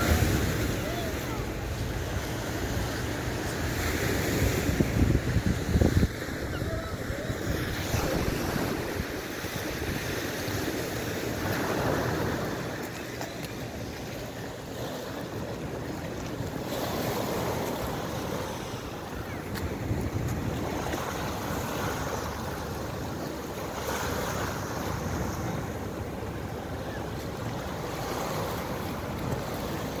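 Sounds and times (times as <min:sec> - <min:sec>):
wind buffeting microphone: 0:04.4 - 0:12.9, 0:19.3 - 0:21.5
waves washing up a pebble beach: 0:05.6 - 0:22.8.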